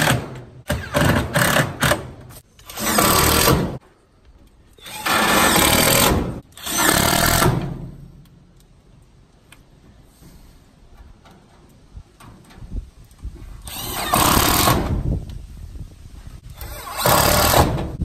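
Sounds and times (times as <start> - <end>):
cordless drill driving screws: 13.6 - 14.9, 16.6 - 17.8.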